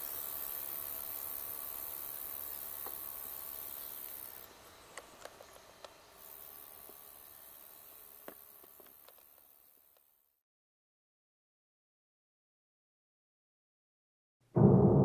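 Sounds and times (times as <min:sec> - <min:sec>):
high-pitched insect hiss: 0:00.0 - 0:10.2.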